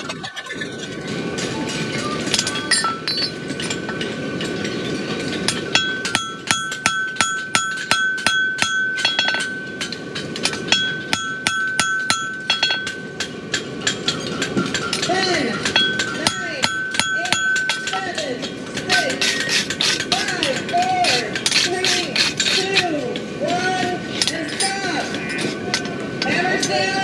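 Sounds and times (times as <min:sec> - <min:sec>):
anvil ringing: 0:01.5 - 0:04.0, 0:05.4 - 0:22.9
hammer blows on anvil: 0:05.4 - 0:22.9.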